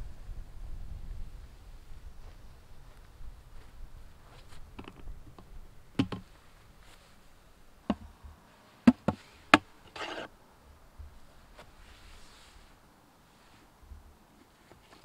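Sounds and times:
plastic scrape: 9.9s - 10.3s.

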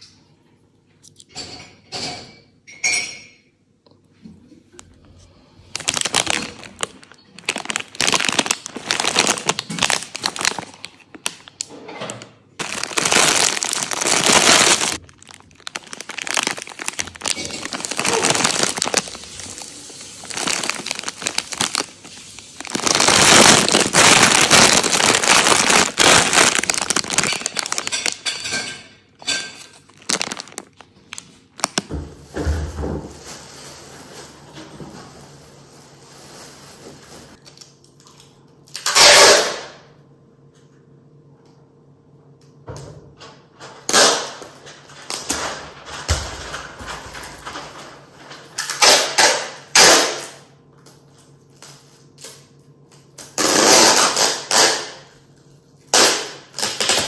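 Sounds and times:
plastic bag crinkling: 5.6s - 38.1s, 43.9s - 50.2s, 55.9s - 57.0s.

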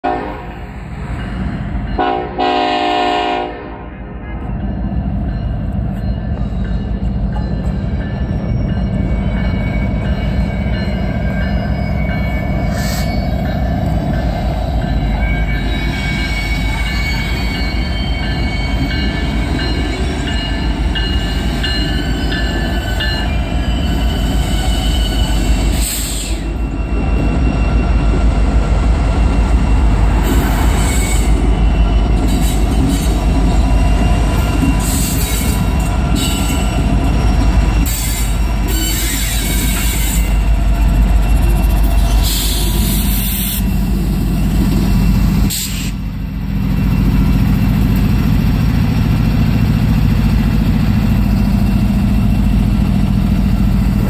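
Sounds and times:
diesel locomotive engines rumbling: 0.0s - 54.0s
train wheels squealing on rail: 4.1s - 54.0s.

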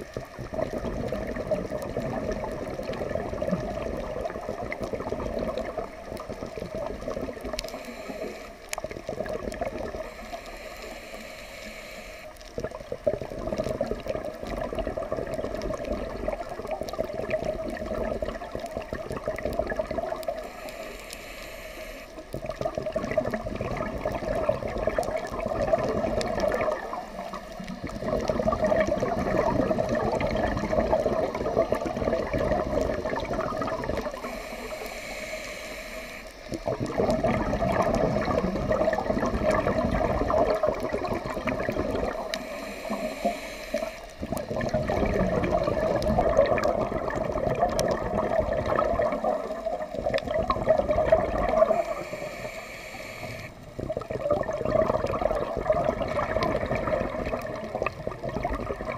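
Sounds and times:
exhaled bubbles underwater: 0.0s - 58.9s
regulator inhale hiss: 7.5s - 8.9s, 9.8s - 12.6s, 20.1s - 22.6s, 34.1s - 36.7s, 42.1s - 44.5s, 51.5s - 53.8s.

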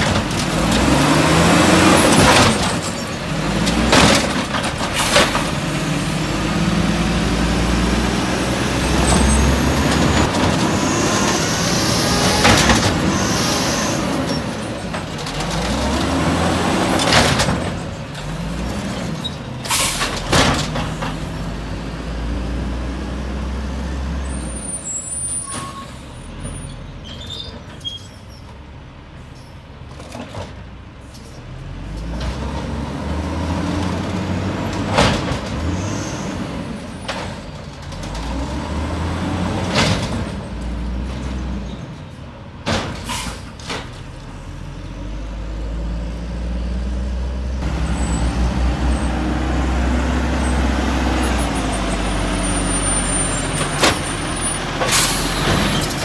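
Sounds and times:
garbage truck engine revving: 0.0s - 24.4s, 31.6s - 41.9s, 43.7s - 56.0s
air brake hisses: 43.0s - 43.5s.

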